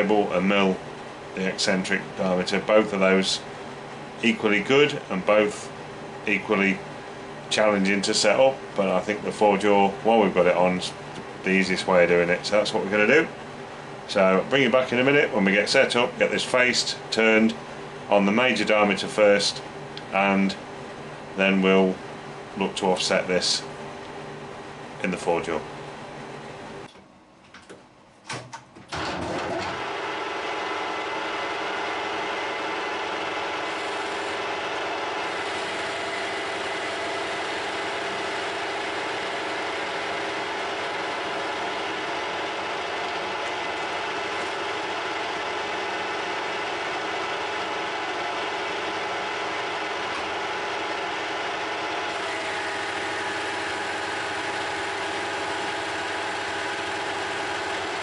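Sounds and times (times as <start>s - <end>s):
metal lathe running: 29.0s - 58.0s
high whine: 30.9s - 58.0s.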